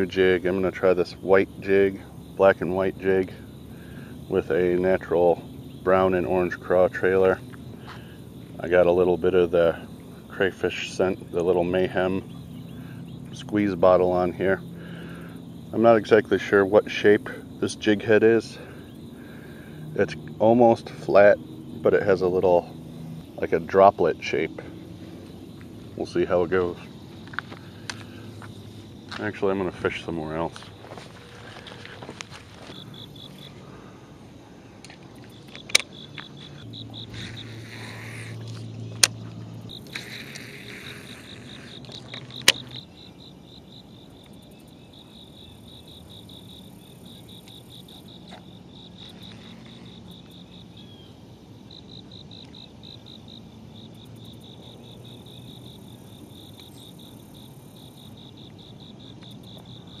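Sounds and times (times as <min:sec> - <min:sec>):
insects trilling: 0:00.0 - 1:00.0
sharp clicks: 0:34.8 - 0:36.3.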